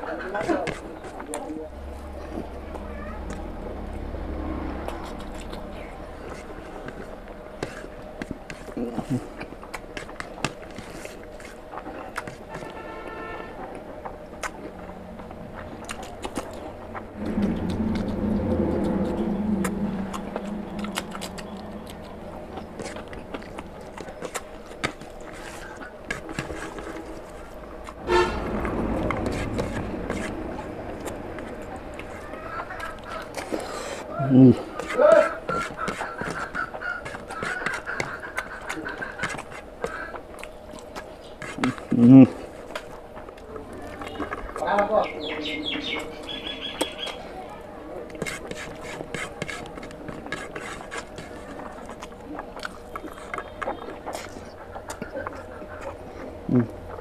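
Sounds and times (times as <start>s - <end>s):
low background hum: 0.0s - 57.0s
wet chewing and lip smacking: 4.6s - 12.7s, 13.6s - 47.4s, 48.1s - 57.0s
eating clicks and smacks: 48.2s - 57.0s.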